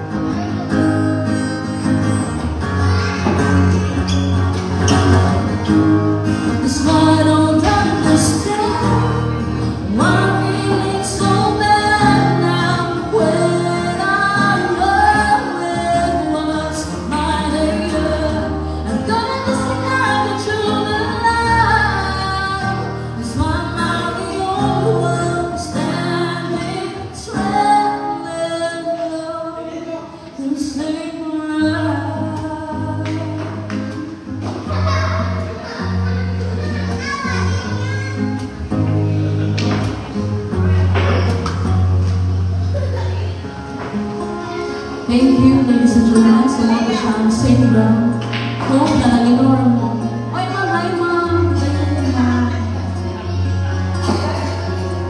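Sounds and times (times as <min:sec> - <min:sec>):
strummed acoustic guitar: 0:00.0 - 0:55.0
woman singing into a microphone: 0:06.5 - 0:34.0, 0:45.0 - 0:54.8.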